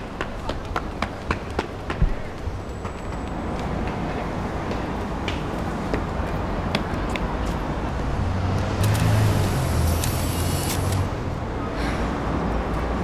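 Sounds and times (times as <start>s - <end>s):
street traffic: 0.0s - 13.0s
vehicle passing with low rumble: 7.8s - 13.0s.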